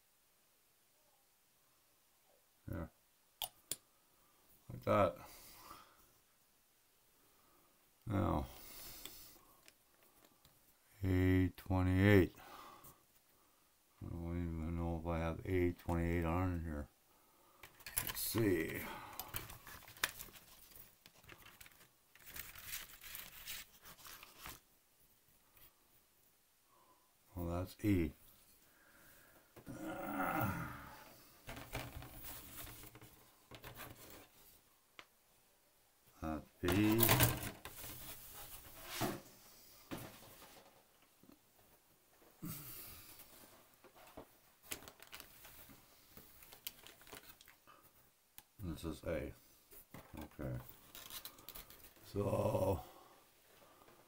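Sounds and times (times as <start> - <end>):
plastic parts clicking: 17.6 - 18.2
paper rustling and crinkling: 17.6 - 24.7, 31.5 - 34.4, 36.6 - 40.8, 43.8 - 47.8, 49.9 - 52.1.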